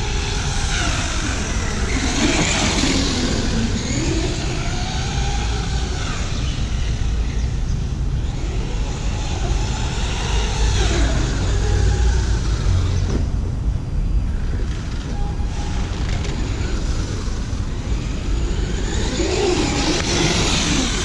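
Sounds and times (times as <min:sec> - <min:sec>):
toy truck electric motor whining: 0:00.0 - 0:07.2, 0:08.2 - 0:13.0, 0:15.4 - 0:21.0.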